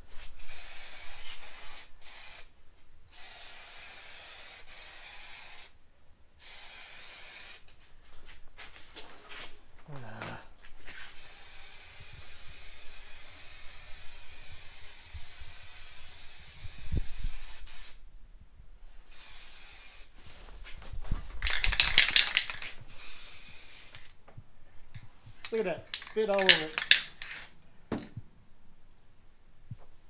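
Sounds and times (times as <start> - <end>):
spray paint can hissing: 0.4 - 2.5, 3.1 - 5.8, 6.4 - 7.6, 11.1 - 18.0, 19.1 - 20.2, 21.4 - 24.2, 25.4 - 27.5.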